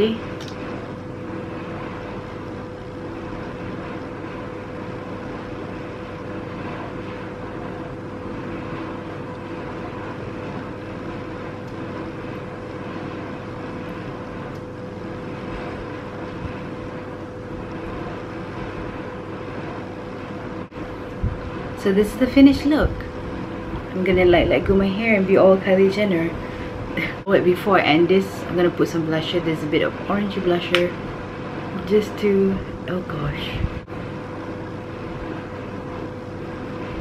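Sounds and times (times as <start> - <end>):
steady hum and hiss: 0.0 - 37.0.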